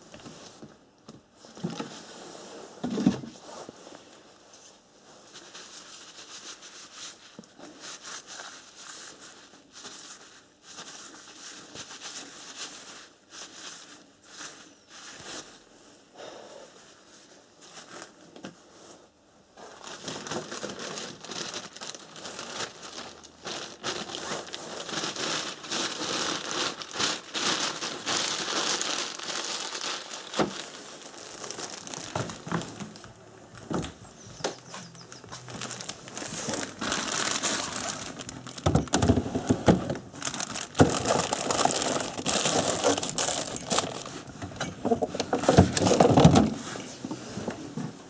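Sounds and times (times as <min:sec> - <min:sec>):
plastic bag crinkling: 0:19.6 - 0:46.6.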